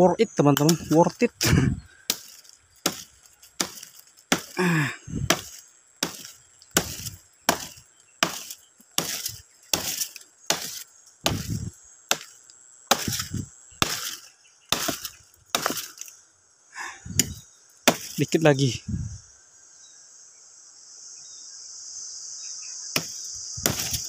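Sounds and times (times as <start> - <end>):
axe chopping tree trunk: 0.6 - 1.0, 1.6 - 16.1, 17.2 - 18.3, 23.0 - 24.0.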